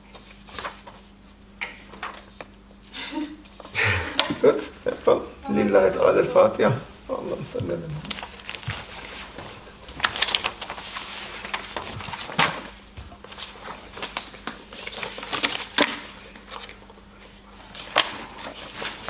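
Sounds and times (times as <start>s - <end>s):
paper sheets rustling: 0.0s - 2.5s, 8.1s - 19.0s.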